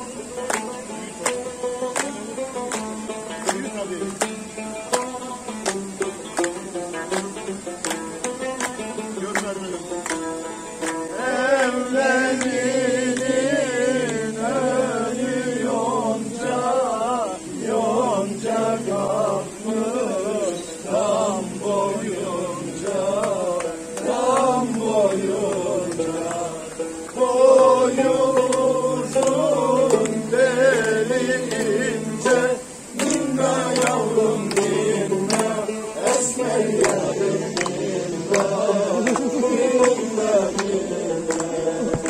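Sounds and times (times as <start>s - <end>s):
man singing slow melody: 16.2s - 42.0s.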